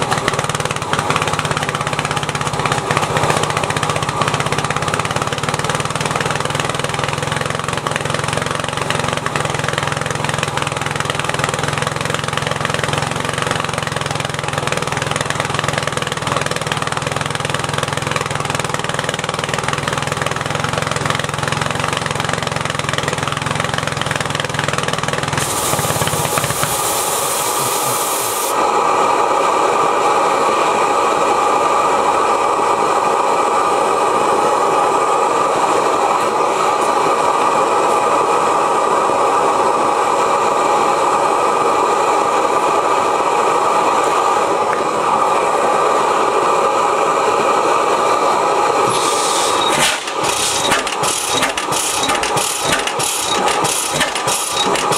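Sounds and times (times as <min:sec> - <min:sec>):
propane burner roaring: 0:00.0 - 0:54.9
sharp bright valve hiss: 0:25.4 - 0:28.6, 0:48.9 - 0:54.9.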